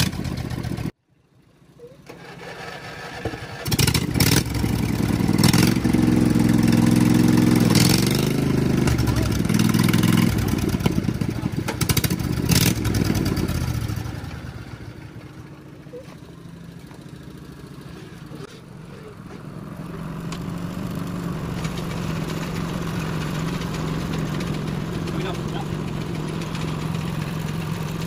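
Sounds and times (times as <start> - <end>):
mower engine revving: 0.0 - 1.0, 2.0 - 28.0
sharp clatters: 18.3 - 28.0.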